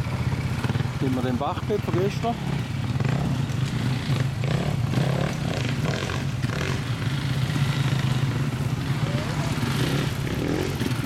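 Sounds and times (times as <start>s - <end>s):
dirt bike engines running: 0.0s - 11.0s.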